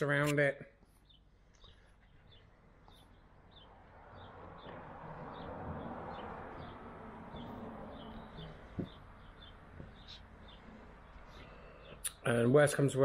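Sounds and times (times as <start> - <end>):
small bird chirping: 0.9 - 12.3.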